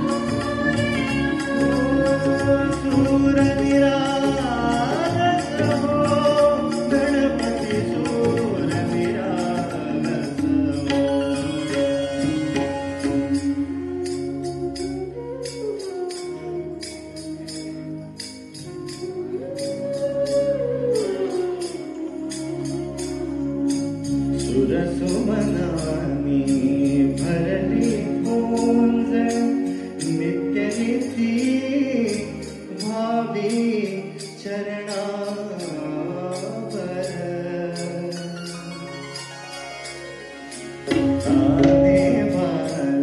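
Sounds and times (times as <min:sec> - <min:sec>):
hand drums: 0:00.0 - 0:14.8, 0:40.5 - 0:43.0
man singing into microphone: 0:00.0 - 0:16.1, 0:19.2 - 0:39.2, 0:40.8 - 0:43.0.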